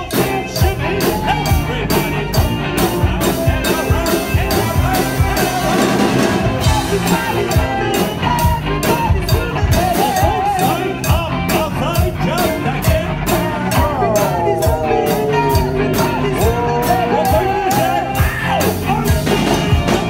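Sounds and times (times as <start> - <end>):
rock band playing: 0.0 - 20.0
cowbell struck on a beat: 6.6 - 20.0.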